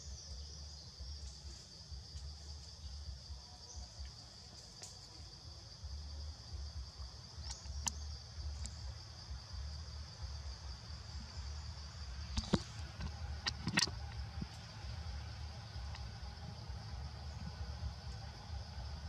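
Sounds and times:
high-pitched insect drone: 0.0 - 19.0
low rumble: 5.2 - 19.0.

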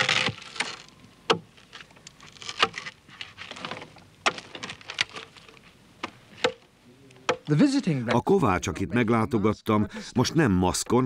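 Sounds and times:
axe chopping wood: 6.0 - 6.6.

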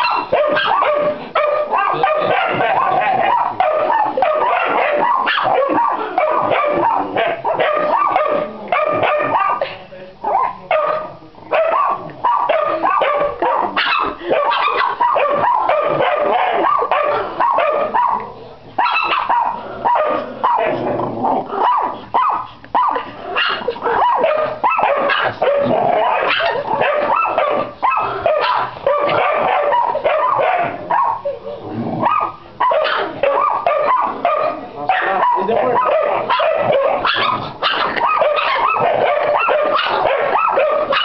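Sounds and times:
dogs barking: 0.0 - 9.7, 10.3 - 41.0.

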